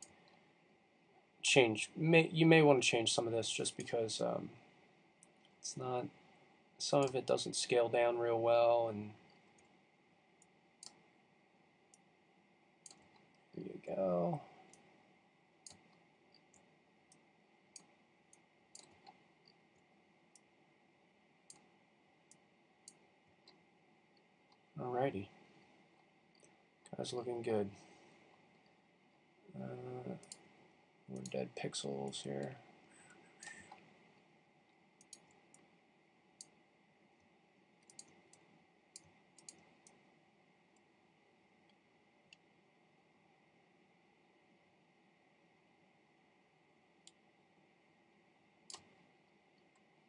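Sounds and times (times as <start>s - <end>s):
computer mouse clicks: 9.2s - 9.8s, 10.4s - 11.1s, 12.8s - 13.5s, 15.6s - 19.6s, 21.4s - 24.7s, 25.3s - 27.0s, 30.1s - 31.4s, 32.4s - 35.7s, 36.4s - 36.6s, 37.8s - 40.0s, 47.0s - 47.2s, 48.6s - 49.9s.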